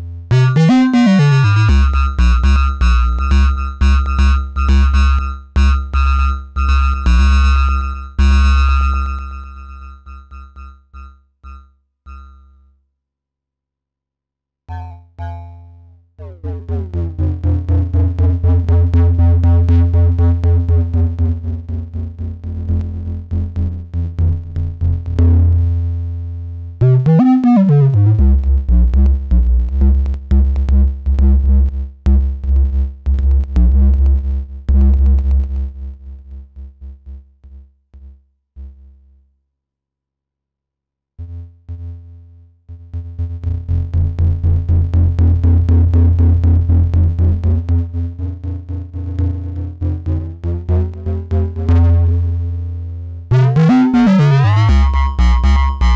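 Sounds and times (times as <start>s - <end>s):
pulsing synthesizer drone: 0.3s - 5.7s, 26.8s - 28.4s, 53.3s - 55.9s.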